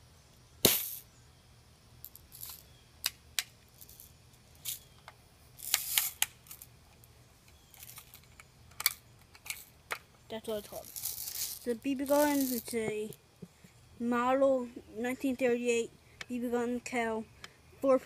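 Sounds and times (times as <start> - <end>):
bb gun firing crack: 0.6 - 1.0.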